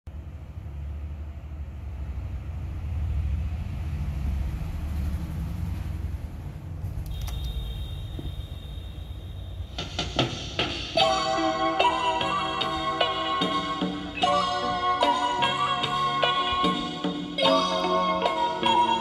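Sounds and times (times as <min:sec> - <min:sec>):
low rumble: 0:00.1 - 0:10.0
tape transport whine: 0:05.2 - 0:19.0.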